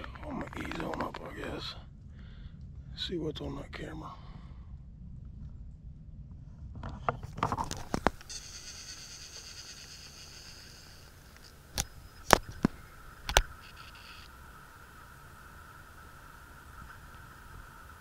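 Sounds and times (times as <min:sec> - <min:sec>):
steady high buzz: 0:07.7 - 0:18.0
twigs snapping: 0:11.3 - 0:13.6.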